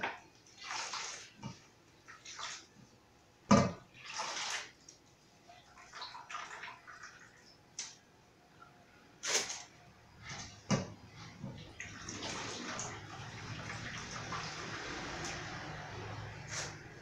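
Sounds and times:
wet squelches of squeezed coconut: 0.4s - 2.8s, 3.9s - 8.0s.

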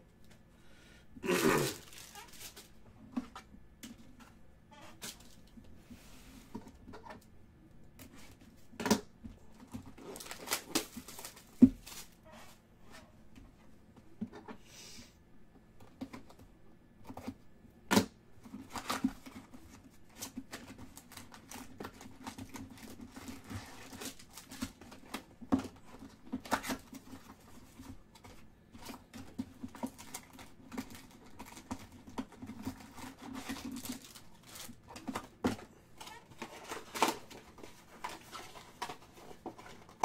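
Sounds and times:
card wrapper crinkling and tearing: 1.3s - 2.7s, 10.0s - 12.2s, 29.8s - 35.2s.

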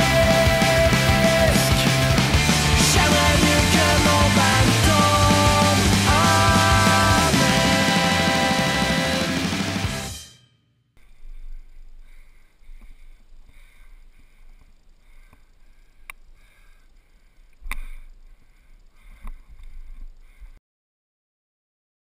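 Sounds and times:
rock music: 0.0s - 10.3s
sharp clicks: 11.8s - 20.2s.

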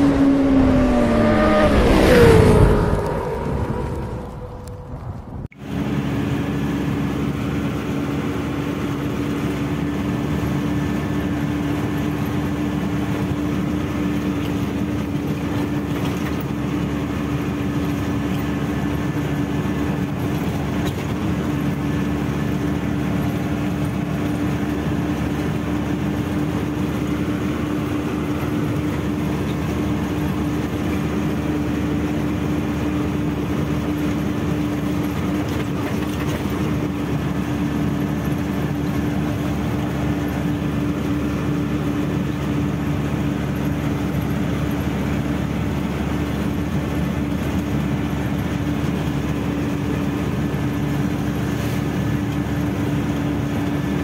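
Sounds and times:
road noise: 0.0s - 54.0s
truck engine running: 0.0s - 54.0s.

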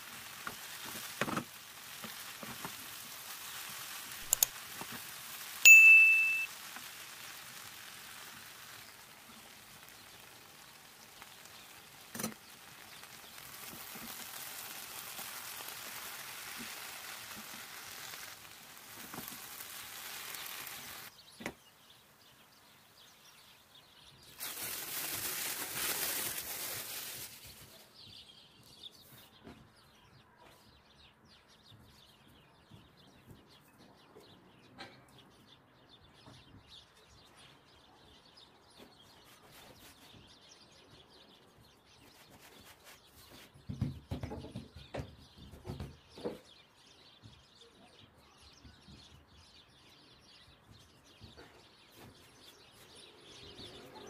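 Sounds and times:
filling sizzling in a frying pan: 0.0s - 21.1s, 24.3s - 27.6s
small ticks: 4.2s - 5.0s.

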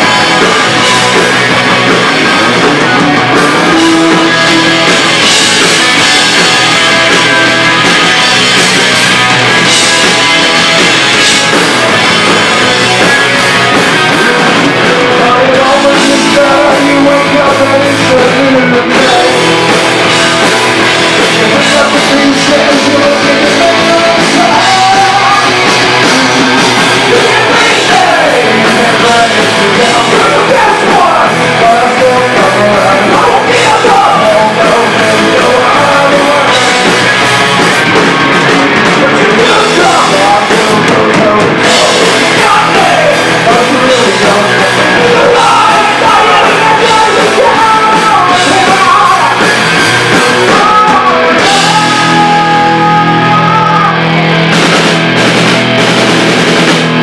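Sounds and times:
bass guitar: 0.0s - 57.0s
drums: 0.0s - 57.0s
electric guitars: 0.0s - 57.0s
person singing: 2.5s - 7.1s, 14.0s - 37.6s, 38.5s - 54.2s.

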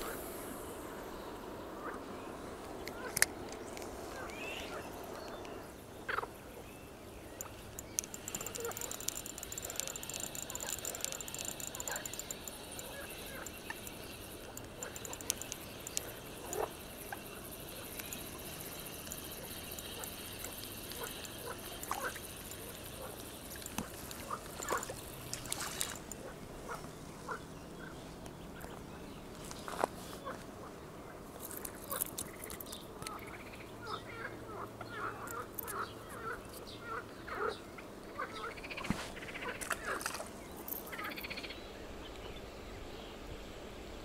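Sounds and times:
birds chirping: 0.0s - 43.6s
high insect hum: 0.0s - 44.0s
fishing reel cranking: 7.4s - 17.1s.

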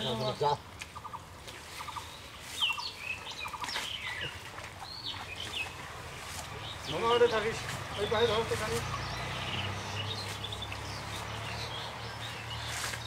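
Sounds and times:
birds calling short notes: 0.0s - 13.0s
high whistled bird calls: 1.8s - 5.8s.

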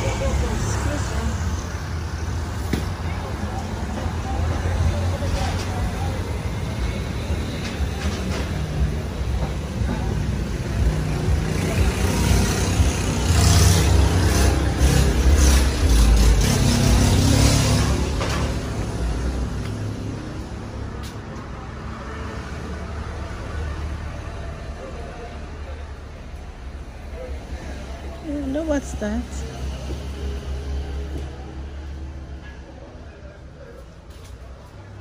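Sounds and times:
passing vehicle rumble: 0.0s - 35.0s.

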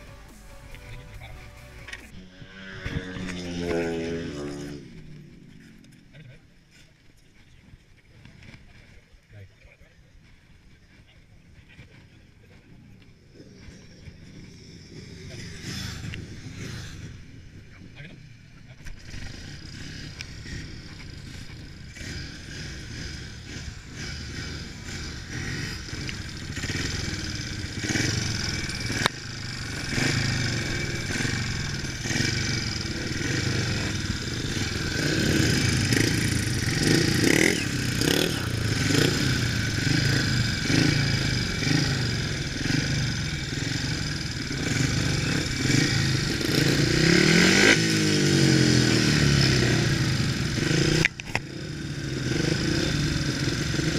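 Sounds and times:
motorcycle engine revving: 0.0s - 9.0s, 10.2s - 53.9s.

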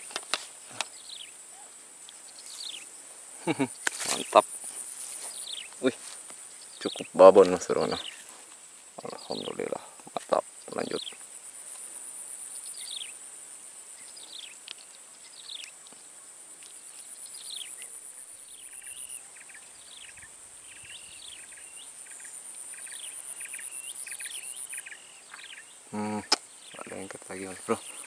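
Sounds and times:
insect pulsing trill: 0.0s - 15.8s, 16.7s - 28.0s
birds whistling: 17.3s - 27.1s.

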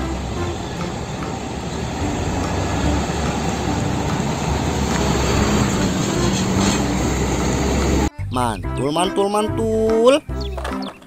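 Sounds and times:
tyres rumbling on road: 0.0s - 8.1s
truck diesel engine: 0.0s - 8.2s.

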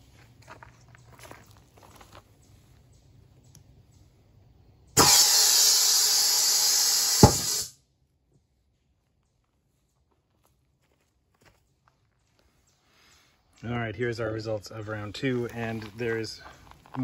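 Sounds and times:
balloon bursting with a pop: 5.0s - 7.7s
compressed air hissing: 5.0s - 7.8s.

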